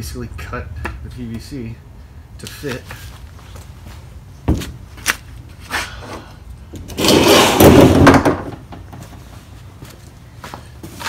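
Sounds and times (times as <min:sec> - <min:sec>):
kayak scraping on concrete: 0:06.8 - 0:08.5.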